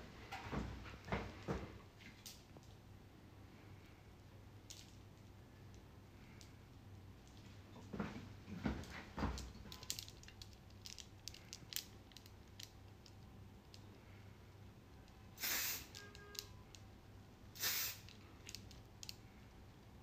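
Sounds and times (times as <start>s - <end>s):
hair spray hissing: 15.4s - 16.0s, 17.6s - 18.1s.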